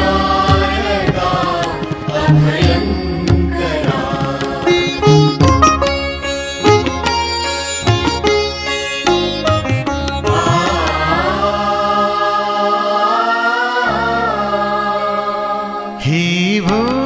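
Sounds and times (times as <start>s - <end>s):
plucked strings: 0.0s - 11.5s.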